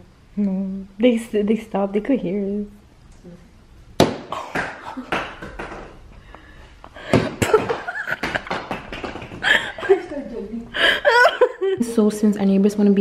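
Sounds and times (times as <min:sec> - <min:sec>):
sharp irregular knocks and bumps: 0:04.0 - 0:06.0, 0:07.1 - 0:09.5.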